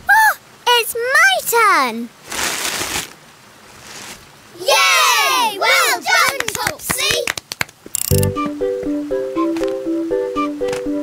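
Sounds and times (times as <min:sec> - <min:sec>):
plucked-string tune: 0:08.0 - 0:09.9.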